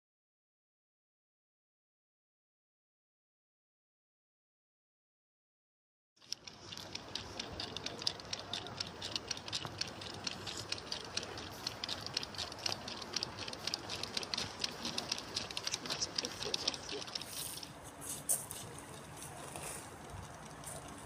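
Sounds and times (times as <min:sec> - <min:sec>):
model locomotive clicking and rattling: 0:06.2 - 0:21.0.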